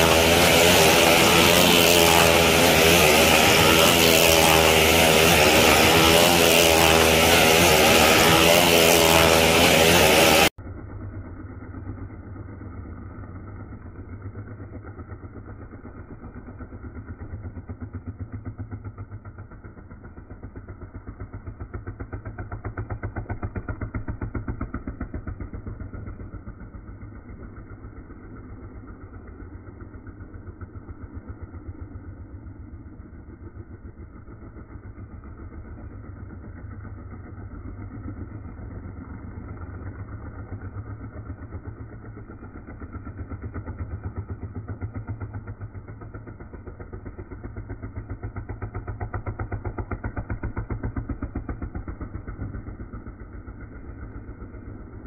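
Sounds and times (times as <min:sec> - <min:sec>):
motorcycle engine racing: 0:00.0 - 0:55.0.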